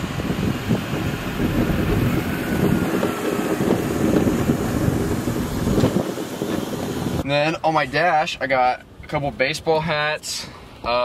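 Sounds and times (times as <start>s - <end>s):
car driving slowly past: 0.0s - 7.2s
wind rumbling on microphone: 0.0s - 7.2s.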